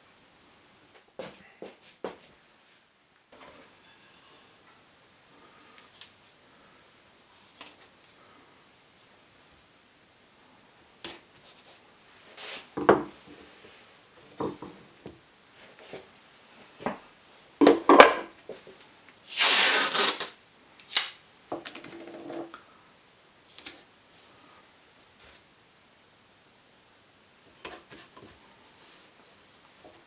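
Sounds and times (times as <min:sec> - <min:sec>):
knocks and rustles of handling: 0:11.0 - 0:18.9
tape ripping off roll: 0:19.3 - 0:22.2.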